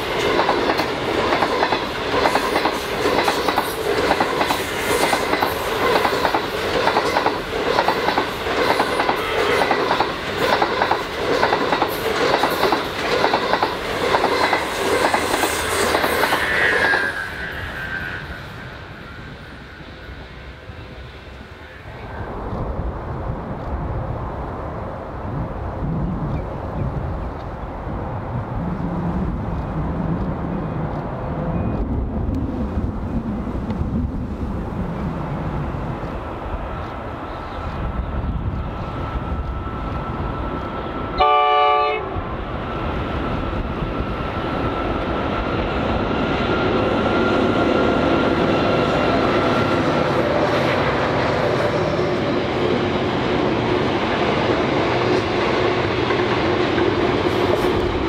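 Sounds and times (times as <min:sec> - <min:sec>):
rail noise: 0:00.0 - 0:58.0
diesel locomotive running: 0:28.3 - 0:58.0
train horn blast: 0:41.2 - 0:42.4.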